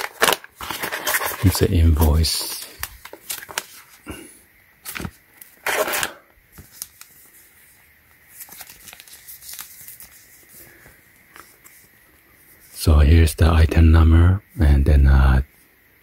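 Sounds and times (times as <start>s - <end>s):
plastic and foil pouch crinkling: 0.0s - 7.6s, 8.2s - 11.7s.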